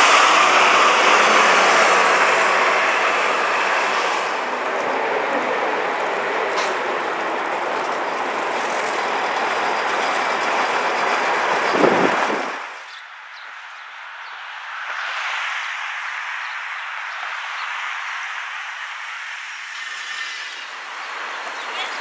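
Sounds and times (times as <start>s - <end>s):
bus driving past: 0.0s - 13.0s
road traffic: 0.0s - 22.0s.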